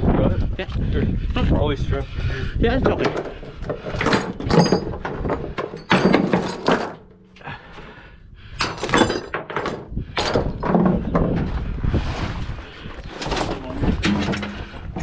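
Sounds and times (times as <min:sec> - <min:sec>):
chains clanking on wooden deck: 0:02.8 - 0:07.4, 0:08.6 - 0:11.4, 0:13.2 - 0:15.0.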